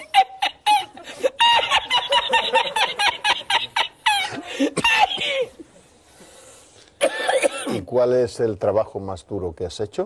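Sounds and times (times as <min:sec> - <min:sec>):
man cackling laugh: 0:00.0 - 0:05.2.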